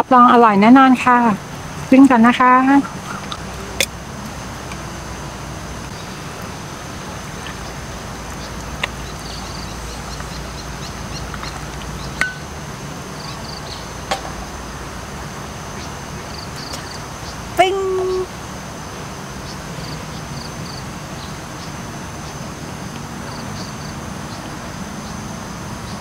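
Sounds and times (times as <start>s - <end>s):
high insect drone: 0.0s - 26.0s.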